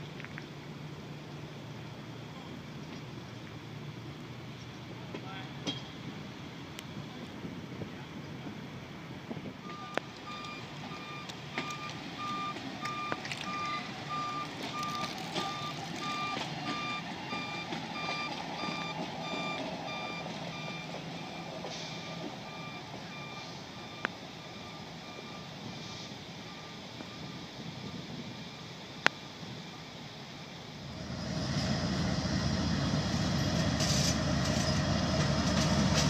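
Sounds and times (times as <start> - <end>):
low engine rumble: 0.0 - 28.8, 30.6 - 36.0
backup alarm beeping: 9.6 - 25.6.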